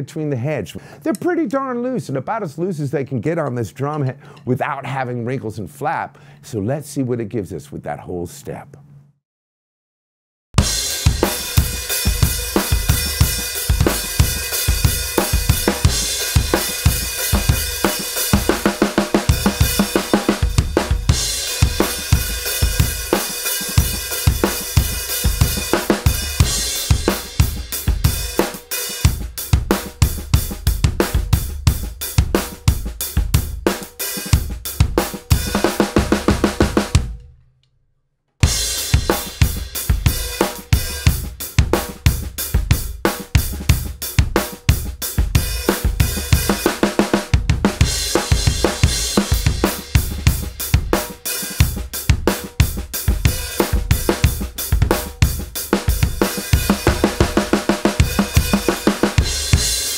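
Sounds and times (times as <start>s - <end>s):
hi-hat and cymbals: 10.6s - 37.0s, 38.4s - 59.9s
snare drum: 10.6s - 37.2s, 38.4s - 59.9s
bass drum: 10.6s - 37.3s, 38.4s - 59.9s
drum kit groove: 10.6s - 37.3s, 38.4s - 59.9s.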